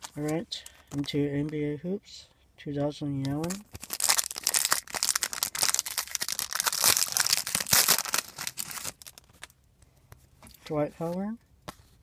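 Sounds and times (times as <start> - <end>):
plastic wrapper crinkling: 0.0 - 1.2, 3.4 - 9.6.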